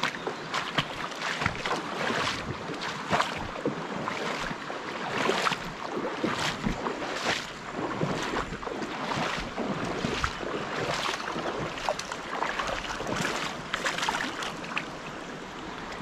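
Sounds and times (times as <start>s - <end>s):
river water splashing: 0.0s - 16.0s
steady water rush: 0.0s - 16.0s.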